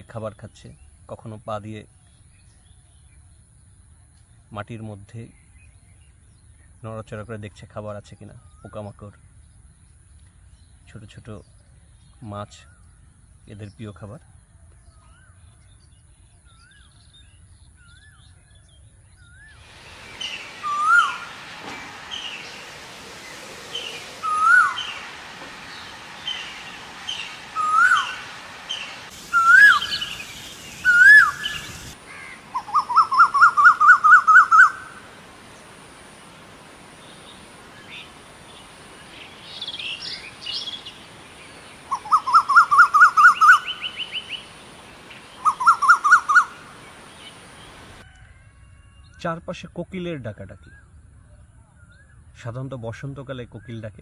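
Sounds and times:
small bird chirps: 0:16.5 - 0:34.9
bird hooked whistles: 0:19.5 - 0:22.7, 0:23.7 - 0:25.1, 0:25.7 - 0:31.9
koel call rising notes: 0:19.6 - 0:35.2.

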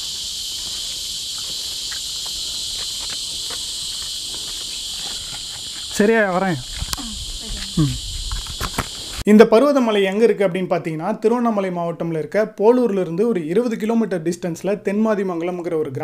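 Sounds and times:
insects buzzing: 0:00.0 - 0:09.3
person calling: 0:05.9 - 0:08.1.

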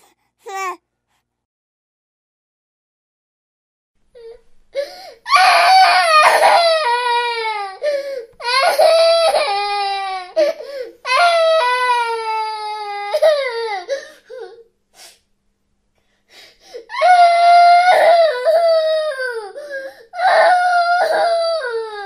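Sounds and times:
baby crying: 0:00.0 - 0:00.8, 0:04.2 - 0:14.6, 0:16.8 - 0:22.0.

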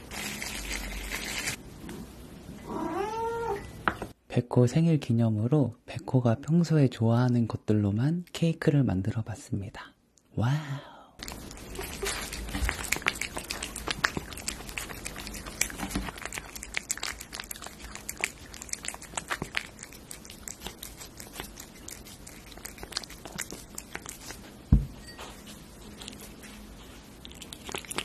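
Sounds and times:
cat chewing and licking food: 0:11.2 - 0:28.0.

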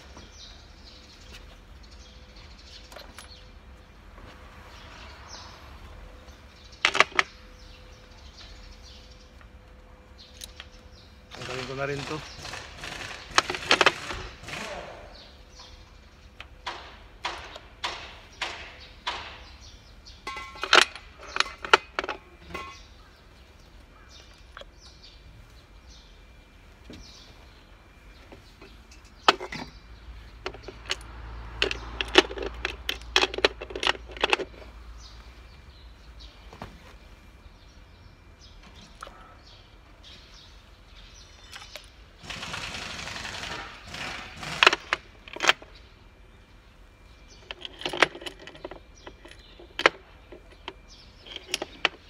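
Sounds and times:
hand tools clinking on metal: 0:20.2 - 0:23.0, 0:28.4 - 0:34.7, 0:47.3 - 0:52.0.

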